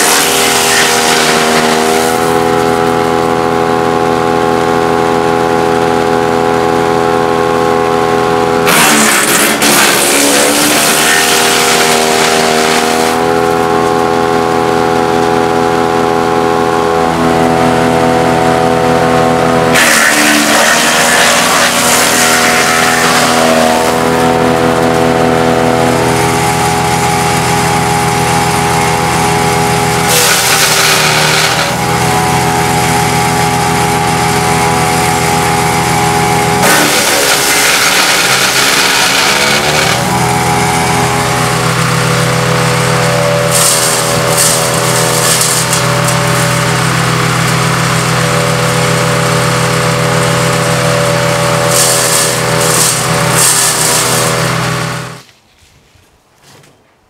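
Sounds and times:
branches chipping and shredding: 0.0 - 3.1, 8.6 - 14.1, 18.8 - 55.4
petrol engine running: 0.0 - 55.3.

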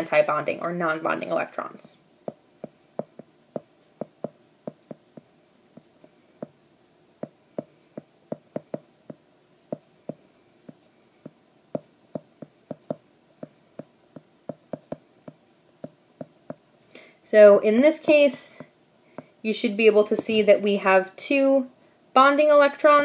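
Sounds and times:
stylus tapping on tablet screen: 2.3 - 6.6, 7.2 - 16.6.

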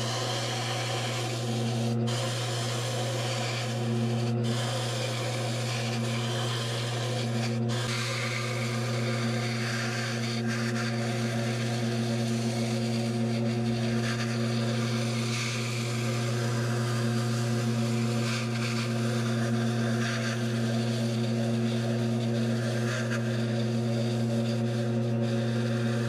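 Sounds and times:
gouge scraping foam: 0.0 - 26.0
lathe motor humming: 0.0 - 26.0.

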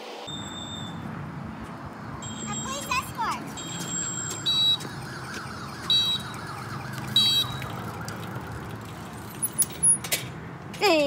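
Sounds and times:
high electronic chirps: 2.2 - 4.8.

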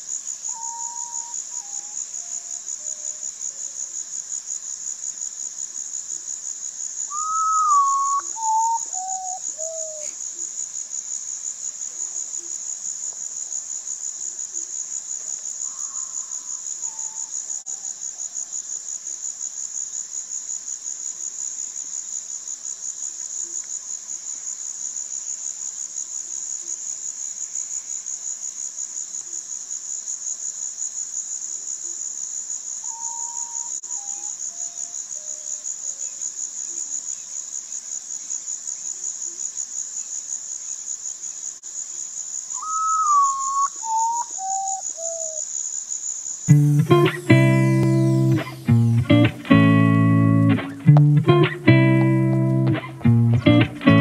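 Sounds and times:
high insect trill: 0.0 - 3.4, 4.0 - 23.1, 32.2 - 53.2
bird whistling falling notes: 7.2 - 10.0.

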